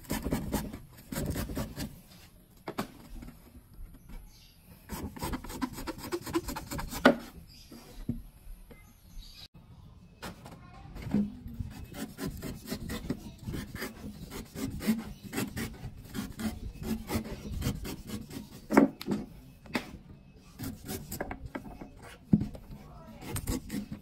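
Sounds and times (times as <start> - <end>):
knife scraping coconut husk: 0.0 - 2.2, 4.9 - 7.4, 11.7 - 18.8, 20.5 - 22.2, 22.8 - 24.0.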